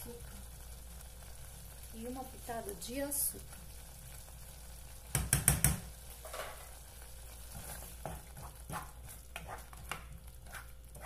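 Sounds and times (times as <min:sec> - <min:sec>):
faint sauce sizzle: 0:00.0 - 0:11.0
wooden spoon knocking on pot: 0:05.1 - 0:05.8
spoon stirring sauce: 0:07.4 - 0:11.0.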